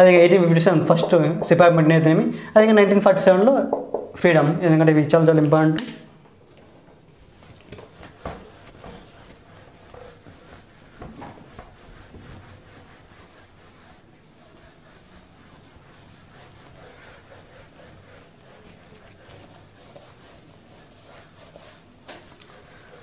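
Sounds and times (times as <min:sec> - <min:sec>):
sharp knocks: 0:03.7 - 0:04.2
eraser rubbing on whiteboard: 0:07.2 - 0:23.0.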